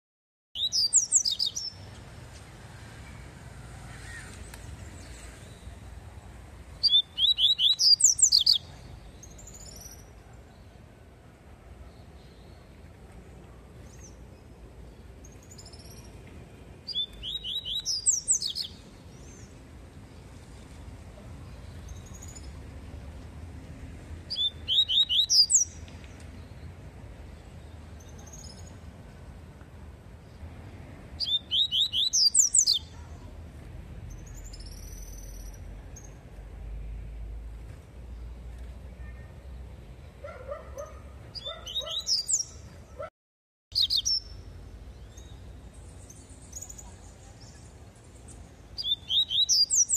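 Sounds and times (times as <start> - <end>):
bird whistling song: 0.6 - 1.8, 6.8 - 10.1, 16.9 - 18.8, 24.3 - 25.8, 31.2 - 32.9, 41.4 - 42.6, 43.7 - 44.4, 48.8 - 49.9.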